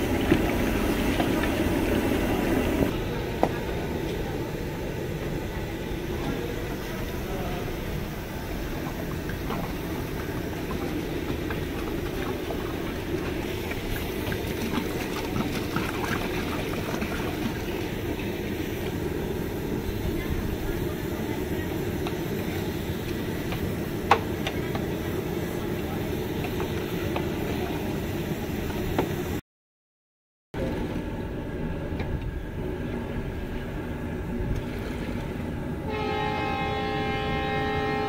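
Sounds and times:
gas burner roaring: 0.0 - 29.4.

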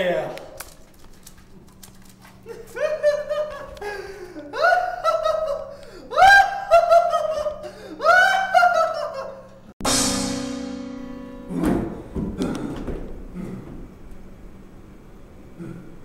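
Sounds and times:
young man laughing: 2.4 - 9.7
low musical sting note: 9.8 - 12.1.

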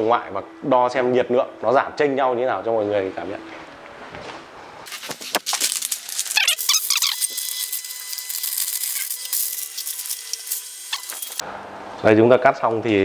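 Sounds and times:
rustling: 3.2 - 7.2
plastic film crinkling and crackling: 4.9 - 7.5.

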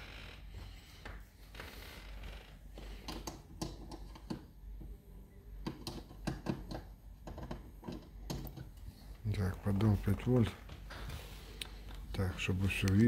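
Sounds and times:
connectors clicking and tapping: 2.9 - 4.9, 5.6 - 8.9.

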